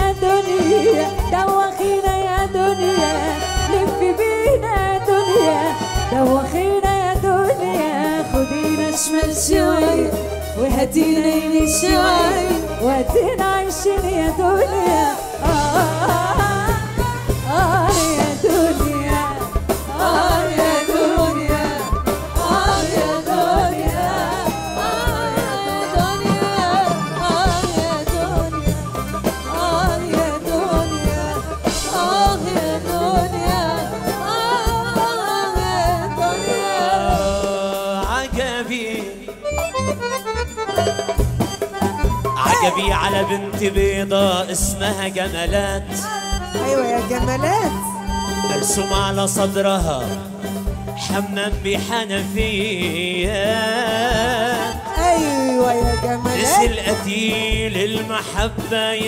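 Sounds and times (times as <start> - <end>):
woman singing into a microphone: 0.0 - 38.1, 42.4 - 43.6, 45.9 - 48.5, 53.8 - 57.6
band with steady beat: 0.0 - 59.0.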